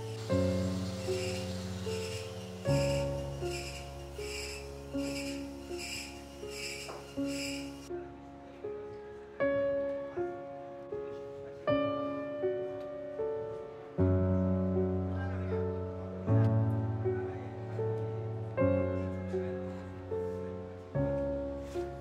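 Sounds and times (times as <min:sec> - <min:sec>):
gentle piano music: 0:00.0 - 0:22.0.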